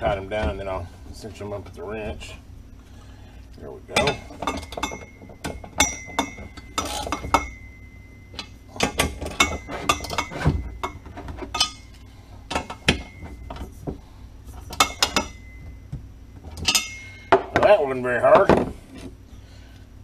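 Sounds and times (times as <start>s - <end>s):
wrench clinking on metal: 4.0s - 13.7s, 14.7s - 15.8s, 16.5s - 17.6s.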